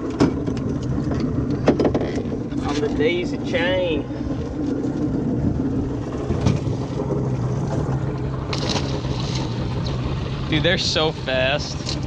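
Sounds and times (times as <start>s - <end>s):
boat engine humming: 0.0s - 12.0s
wind noise on microphone: 4.9s - 10.0s.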